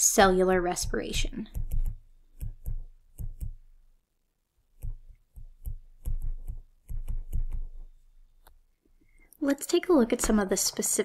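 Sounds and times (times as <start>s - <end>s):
stylus clicking on drawing surface: 1.5s - 3.6s, 4.8s - 7.8s.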